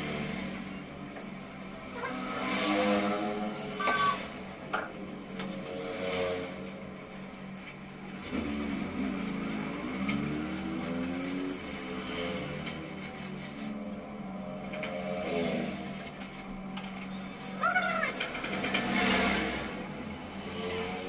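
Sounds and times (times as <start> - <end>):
vehicle engine revving: 1.6 - 7.4, 8.0 - 16.2, 17.6 - 21.0
loud high-pitched squeal: 3.8 - 4.4.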